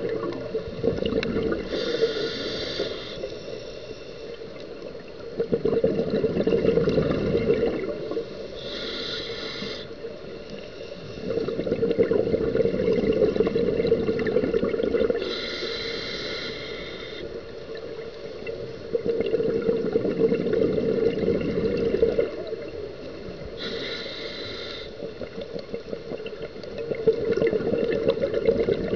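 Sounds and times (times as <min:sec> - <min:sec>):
exhaled bubbles burbling: 0:00.0 - 0:02.0, 0:04.9 - 0:08.3, 0:11.2 - 0:15.3, 0:18.5 - 0:23.5, 0:25.0 - 0:28.9
regulator air hiss: 0:01.7 - 0:04.5, 0:08.2 - 0:11.2, 0:15.2 - 0:17.6, 0:23.5 - 0:25.1.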